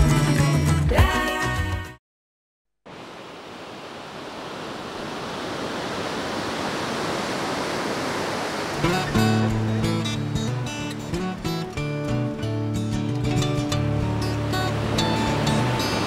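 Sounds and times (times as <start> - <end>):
ocean surf: 2.9 - 11.3, 13.6 - 16.0
acoustic guitar music: 8.8 - 16.0.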